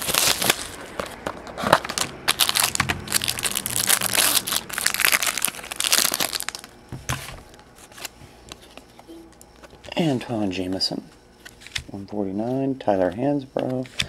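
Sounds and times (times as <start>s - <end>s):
plastic wrap crinkling: 0.0s - 9.9s.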